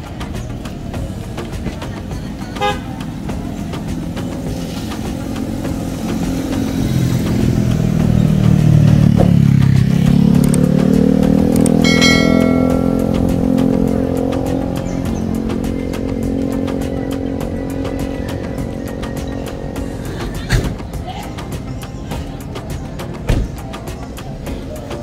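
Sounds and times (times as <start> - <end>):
vehicle engine passing: 0.1 - 25.0
vehicle horn beeping: 2.6 - 3.0.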